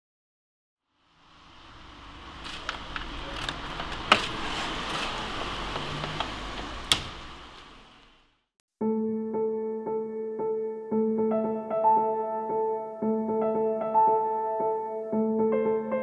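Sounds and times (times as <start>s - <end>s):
room background noise: 0.9s - 8.4s.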